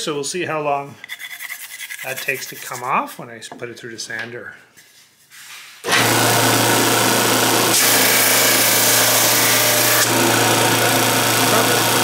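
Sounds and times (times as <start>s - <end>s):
sander motor hum: 5.9s - 12.0s.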